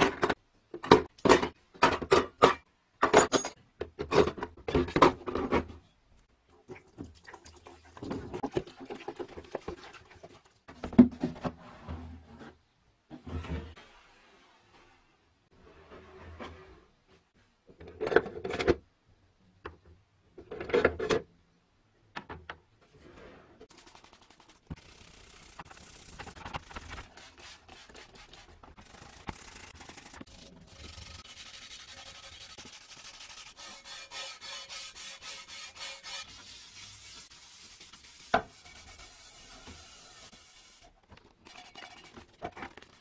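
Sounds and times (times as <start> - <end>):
scouring pad scrubbing metal: 23.7 - 40.2.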